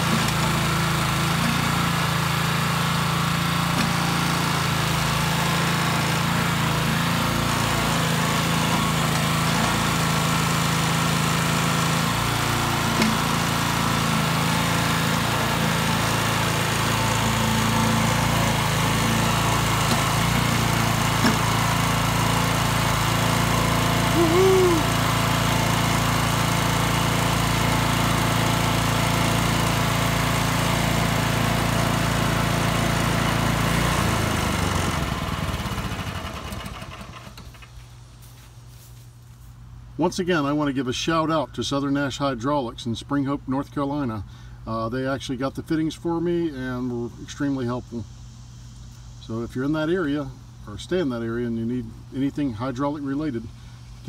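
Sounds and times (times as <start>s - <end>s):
small gas engine running: 0.0s - 37.8s.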